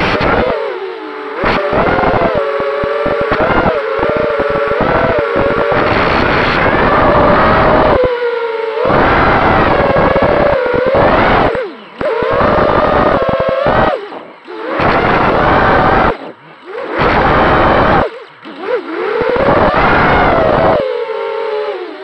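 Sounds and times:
drone motors whining: 0.0s - 22.0s.

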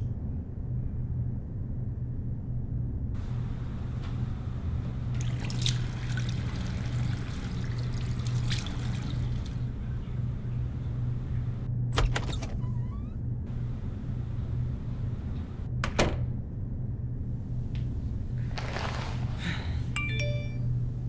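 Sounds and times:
steady low hum: 0.0s - 18.6s, 19.2s - 21.0s
water splashing in a sink: 5.1s - 9.8s.

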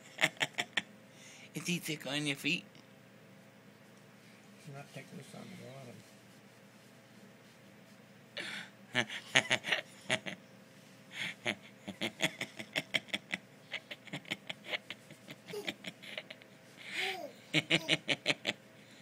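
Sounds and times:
breathy laughter: 8.4s - 10.4s, 11.1s - 18.6s.

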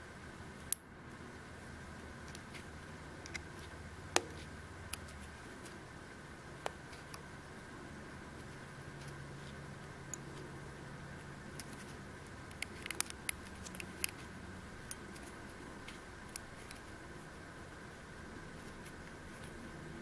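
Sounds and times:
steady low hum: 0.0s - 20.0s
faint clicks and ticks: 11.5s - 16.9s.

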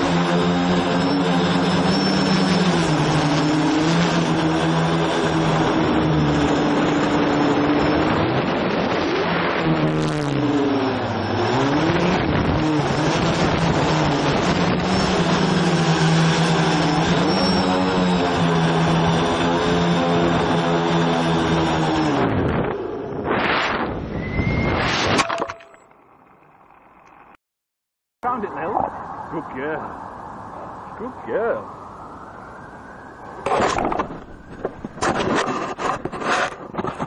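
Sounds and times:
quadcopter motors whining: 0.0s - 23.3s.

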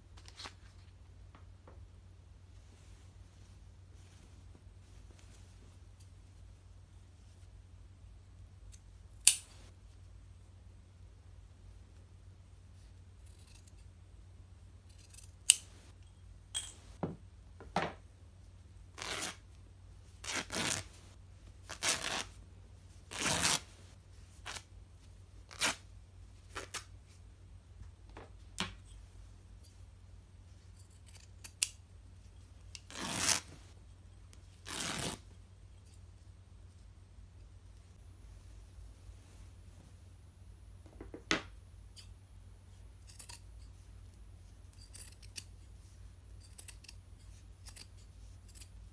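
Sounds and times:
scissors snipping fabric: 46.4s - 47.0s.

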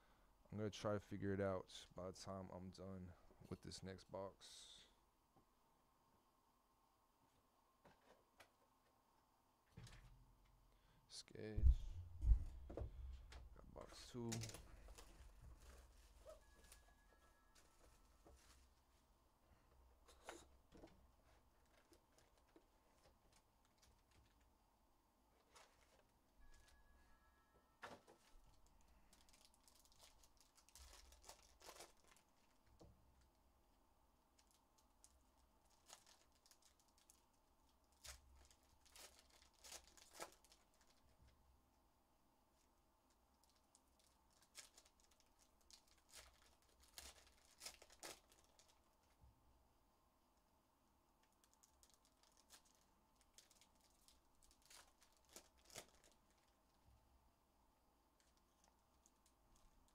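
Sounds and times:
foil wrapper tearing: 29.1s - 32.6s, 35.7s - 37.2s, 37.9s - 41.0s, 43.4s - 48.8s, 51.3s - 56.6s.

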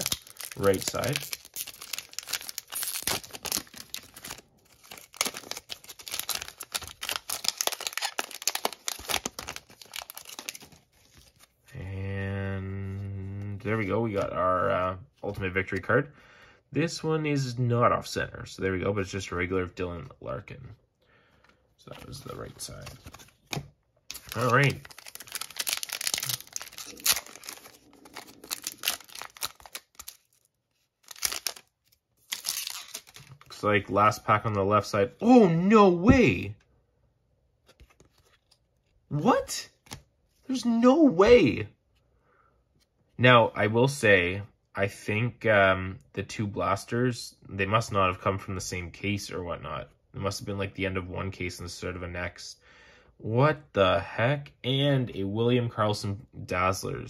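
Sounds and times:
foil wrapper tearing and crinkling: 0.0s - 11.4s, 24.1s - 33.5s.

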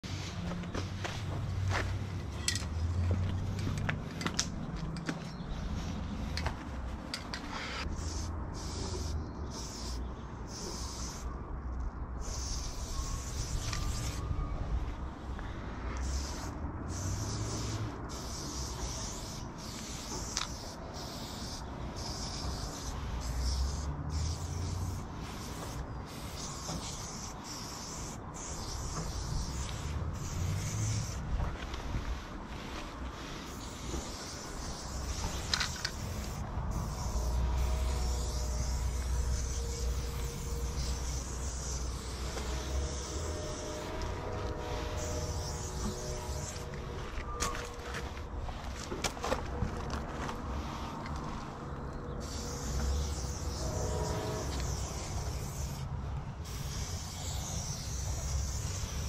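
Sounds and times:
footsteps on a dirt trail: 0.0s - 7.6s, 46.4s - 51.6s
spray-paint can hissing: 7.5s - 11.3s, 12.2s - 14.3s, 16.0s - 48.6s, 52.2s - 59.0s.

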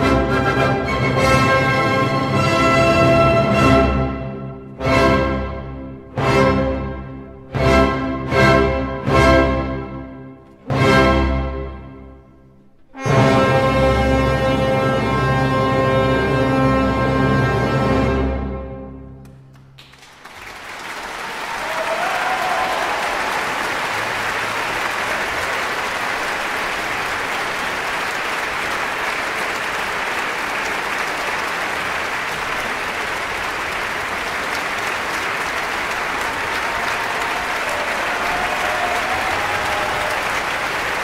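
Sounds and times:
audience applauding: 19.2s - 41.0s.

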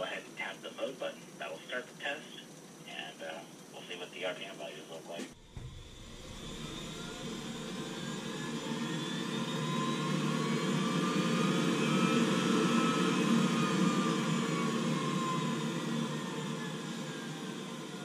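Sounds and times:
boiler fan motor whine: 5.3s - 18.0s.

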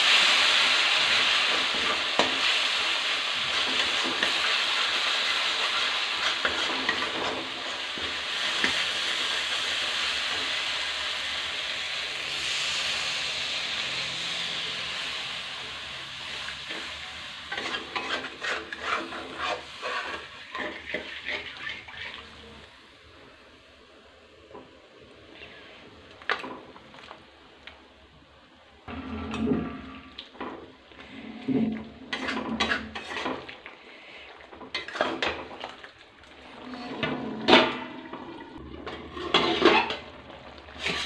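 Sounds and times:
spices sizzling in a pan: 0.0s - 24.0s
spatula scraping a metal pan: 5.5s - 7.8s, 17.5s - 22.3s, 31.4s - 33.4s, 39.0s - 40.0s.

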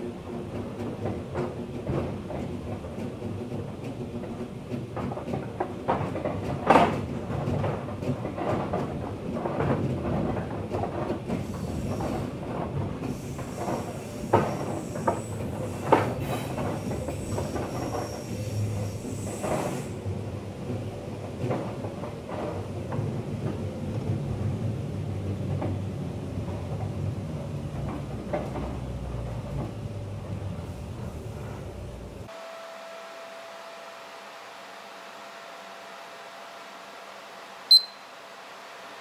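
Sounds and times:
train wheels clattering over rails: 0.0s - 32.3s
passing train whining: 22.1s - 39.0s.

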